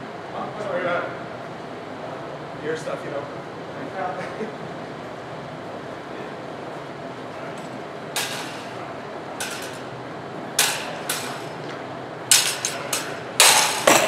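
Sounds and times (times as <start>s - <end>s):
metal blades clashing: 8.2s - 9.9s, 10.6s - 11.7s, 12.3s - 14.0s.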